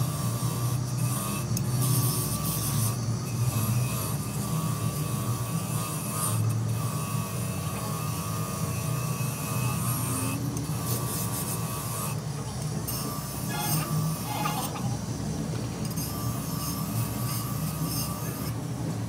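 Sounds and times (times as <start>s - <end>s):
bench grinder motor hum: 0.0s - 19.0s
wire brush hissing on metal: 13.3s - 15.4s.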